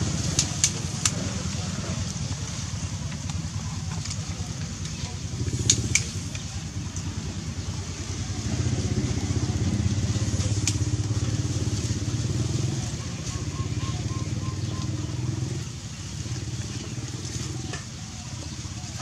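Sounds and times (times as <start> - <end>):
engine running: 0.0 - 19.0
sharp clicks: 3.1 - 7.1.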